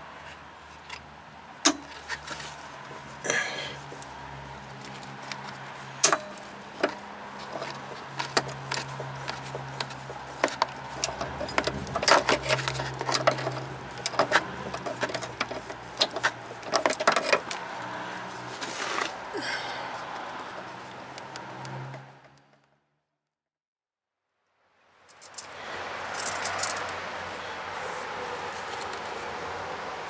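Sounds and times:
hand tools clinking on metal: 0:06.0 - 0:17.6.

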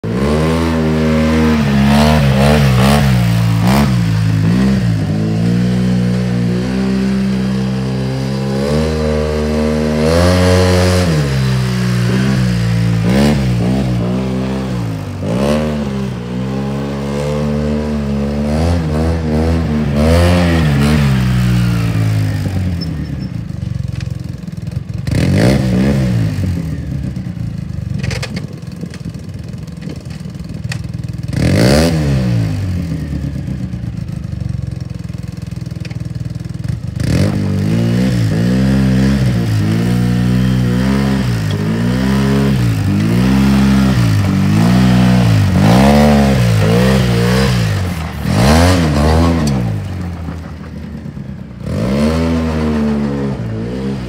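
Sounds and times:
engine revving: 0:00.0 - 0:28.1, 0:31.0 - 0:34.8, 0:36.4 - 0:54.0
tyres on gravel: 0:33.4 - 0:54.0.

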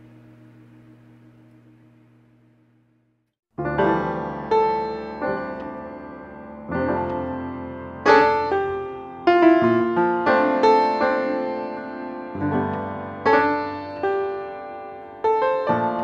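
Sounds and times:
slow solo piano: 0:03.6 - 0:16.0.

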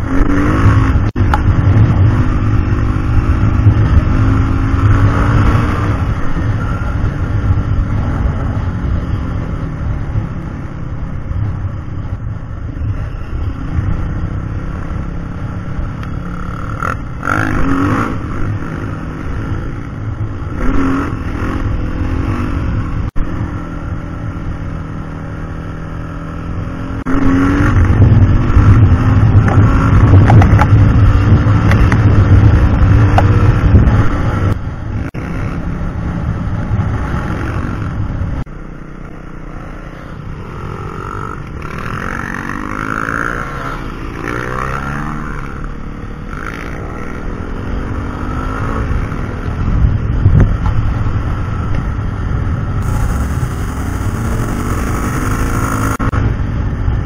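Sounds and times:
dirt bike engine revving: 0:00.0 - 0:01.2, 0:39.6 - 0:49.4, 0:52.8 - 0:56.2.

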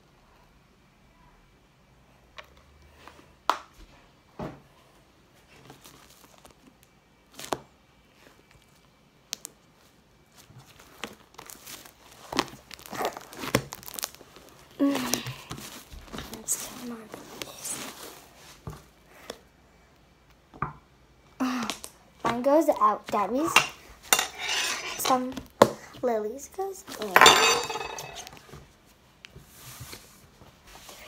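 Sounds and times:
slime tearing and crackling: 0:10.7 - 0:18.1.

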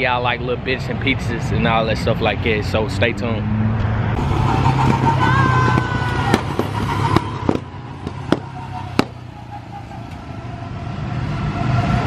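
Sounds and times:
go-kart engines running: 0:04.2 - 0:10.5.

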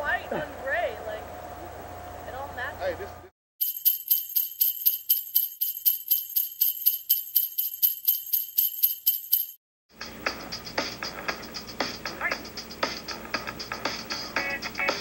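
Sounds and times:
jingle bells shaken: 0:03.6 - 0:09.6.

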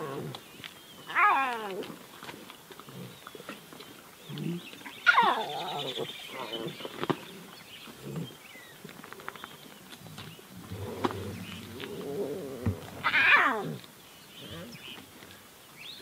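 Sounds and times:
lion cub mewing: 0:05.0 - 0:06.6, 0:10.7 - 0:14.8.

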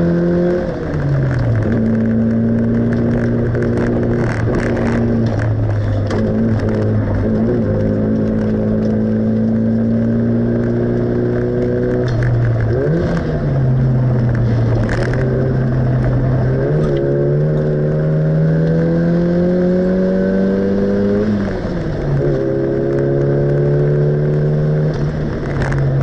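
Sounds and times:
racing car engine revving: 0:00.0 - 0:26.0.

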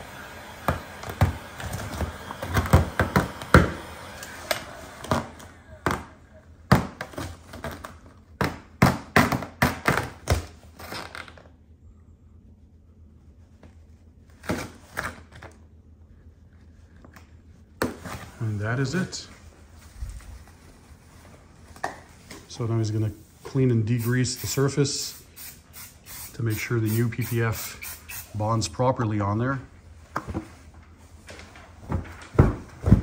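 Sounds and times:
heat gun blower hissing: 0:00.0 - 0:06.0, 0:22.5 - 0:28.7.

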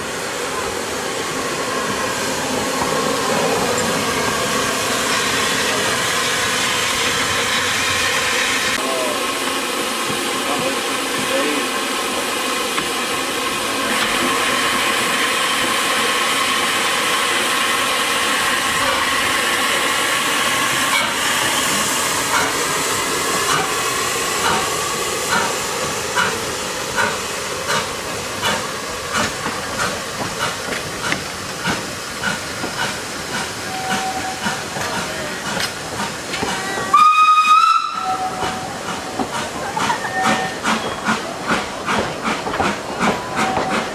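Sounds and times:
steam locomotive hissing: 0:00.0 - 0:43.9
steam whistle blast: 0:33.6 - 0:34.6, 0:36.9 - 0:38.7.

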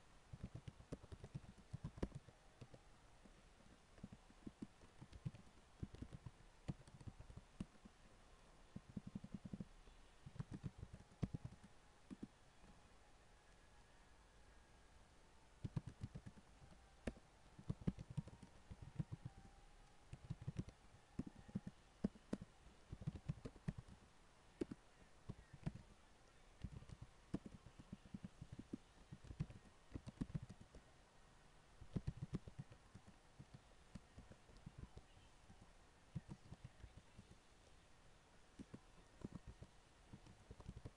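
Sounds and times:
typing on computer keyboard: 0:00.3 - 0:02.8, 0:04.0 - 0:07.8, 0:08.8 - 0:12.3, 0:15.6 - 0:19.5, 0:20.1 - 0:24.0, 0:24.6 - 0:25.9, 0:26.6 - 0:30.8, 0:31.9 - 0:35.1, 0:38.6 - 0:40.9.

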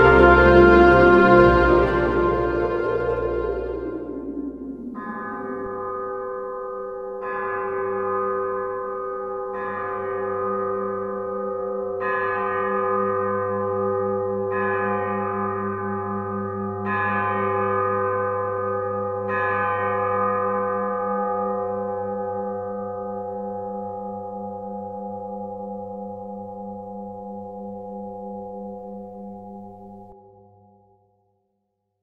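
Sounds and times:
low wavering hum: 0:00.0 - 0:07.2
bell struck ringing: 0:00.0 - 0:22.0.

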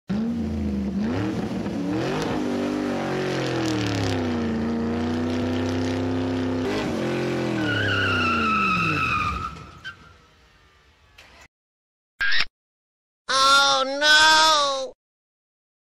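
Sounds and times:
truck engine revving: 0:00.1 - 0:10.8
tire squeal: 0:06.6 - 0:10.9.

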